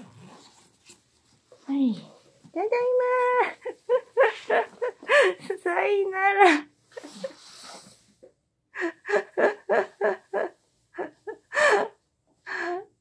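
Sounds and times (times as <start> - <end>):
person laughing: 3.4 - 5.6, 8.8 - 11.9.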